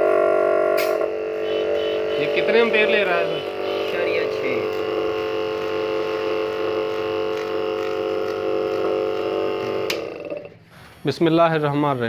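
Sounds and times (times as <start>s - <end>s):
compressor electric hum: 0.0s - 12.0s
compressor switching off click: 3.6s - 10.6s.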